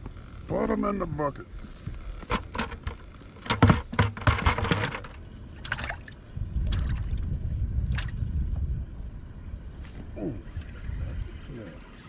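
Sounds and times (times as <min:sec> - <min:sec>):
fish splashing in a bucket: 0:05.6 - 0:07.0.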